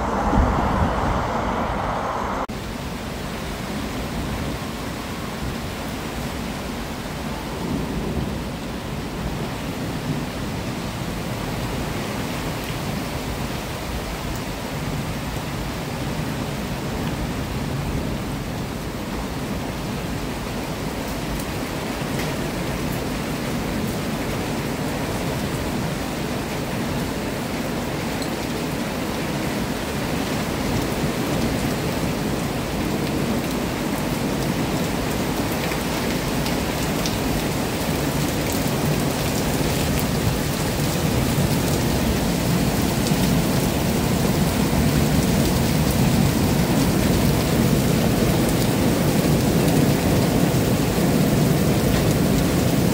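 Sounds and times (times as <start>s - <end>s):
low thunder rumble: 0.0s - 2.5s
heavy rain: 0.0s - 52.9s.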